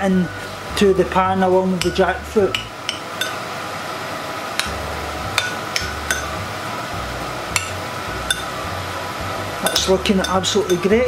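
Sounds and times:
metal spoon clinking on bowl: 1.8 - 3.4, 7.6 - 8.5, 9.6 - 10.9.

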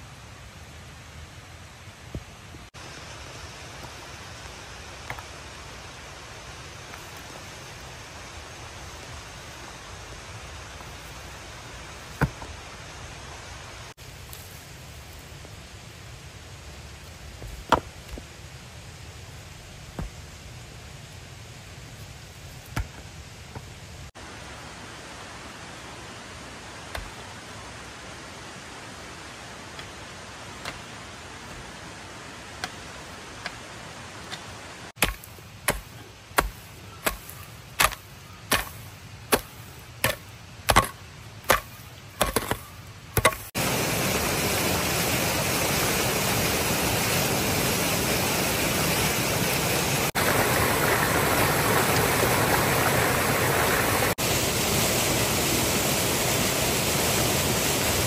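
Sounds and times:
stream water rushing: 0.0 - 14.2, 15.3 - 58.0
hoe chopping into soil: 12.1 - 12.6, 34.3 - 43.5.

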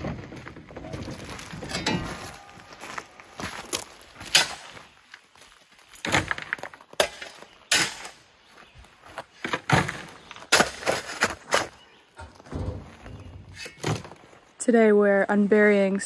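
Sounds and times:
digging tool crunching into gravel: 1.3 - 8.3, 9.2 - 11.8.

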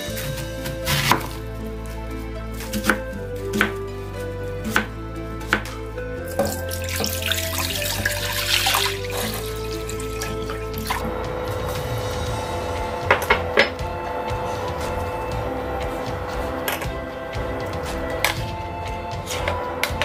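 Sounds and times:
knife chopping on wooden board: 0.2 - 1.4, 2.7 - 3.8
water pouring into a pot: 6.4 - 11.1.

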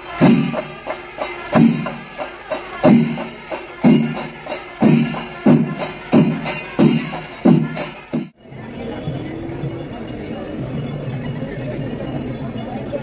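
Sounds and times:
clashing cymbals: 0.0 - 8.4
heavy drum strokes: 0.0 - 8.4.

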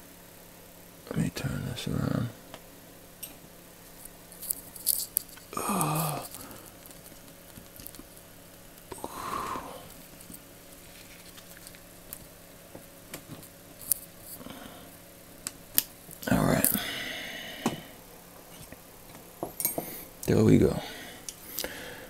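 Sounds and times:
person grunting: 5.5 - 6.7, 8.9 - 9.9, 16.2 - 17.9
breathy exhale: 8.9 - 9.9, 14.4 - 15.0, 16.7 - 18.0, 20.8 - 22.0.

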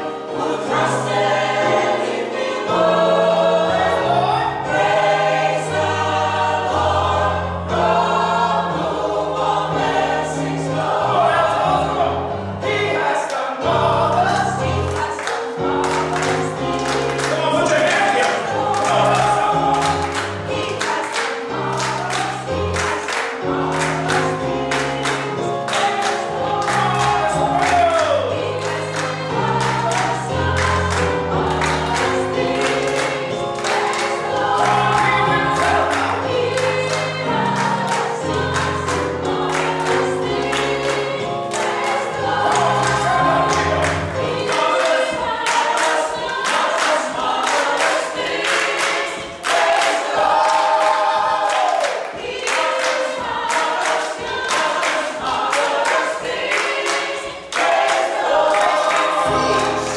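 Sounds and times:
gospel choir singing: 0.0 - 59.9
keyboard accompaniment: 0.0 - 59.9
hand claps: 15.0 - 38.9, 41.6 - 59.9.

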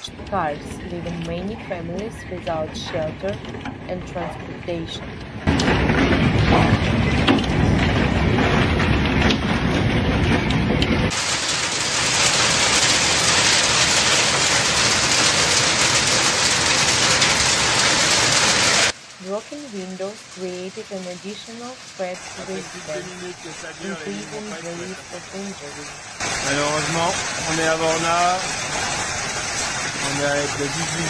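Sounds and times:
hail and heavy rain pelting: 0.2 - 31.0
hail and rain hissing on lawn: 11.0 - 31.0.

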